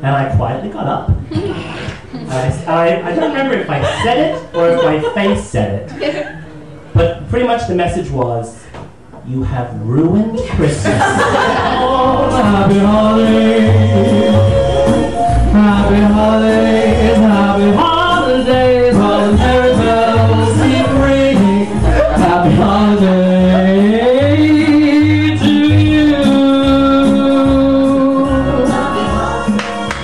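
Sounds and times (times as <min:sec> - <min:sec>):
backing music with bass beat: 0:11.0 - 0:30.0
man singing into a microphone: 0:11.6 - 0:29.6.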